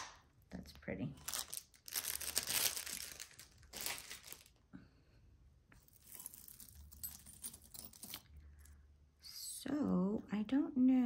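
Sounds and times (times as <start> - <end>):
plastic bag crinkling: 1.2 - 4.7
metal jewelry clicking: 5.9 - 8.4.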